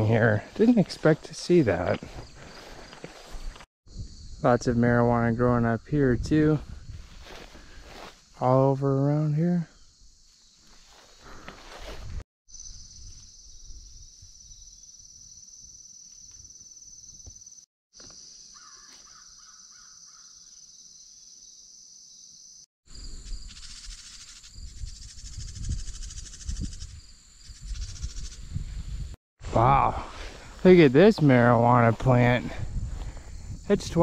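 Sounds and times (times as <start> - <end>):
footsteps through undergrowth: 0.3 - 3.7, 6.9 - 8.4, 10.2 - 12.2, 18.6 - 19.8
insects buzzing: 0.6 - 4.4, 9.7 - 28.7
bird calling: 18.5 - 20.6.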